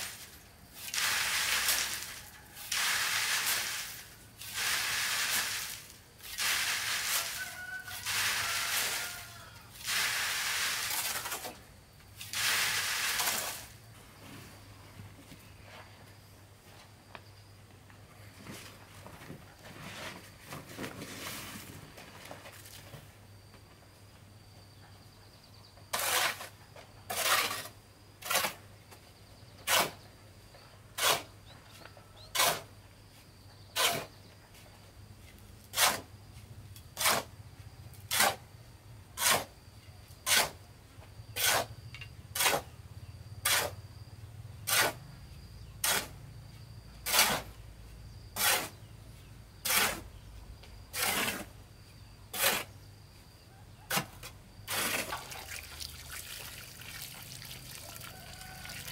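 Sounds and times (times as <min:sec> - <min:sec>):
shovel scraping on concrete: 0:00.0 - 0:14.5, 0:19.7 - 0:22.9, 0:25.9 - 0:28.7, 0:29.6 - 0:30.1, 0:31.0 - 0:31.6, 0:32.2 - 0:32.7, 0:33.7 - 0:34.2, 0:35.3 - 0:36.2, 0:36.8 - 0:37.4, 0:38.0 - 0:38.4, 0:39.1 - 0:39.6, 0:40.2 - 0:40.6, 0:41.3 - 0:42.8, 0:43.4 - 0:43.8, 0:44.6 - 0:45.0, 0:45.7 - 0:46.2, 0:47.0 - 0:47.6, 0:48.3 - 0:48.9, 0:49.6 - 0:52.8, 0:53.9 - 0:56.2.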